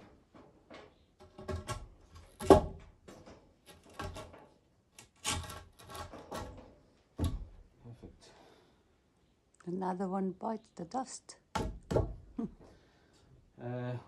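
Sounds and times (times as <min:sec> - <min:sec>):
wooden beam knocking and scraping: 0:00.0 - 0:08.2, 0:11.5 - 0:12.3.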